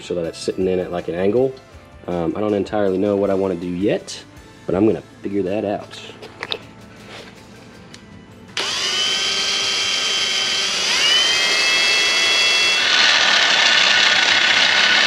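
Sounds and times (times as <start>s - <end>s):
cordless drill drilling into metal: 8.6s - 15.0s.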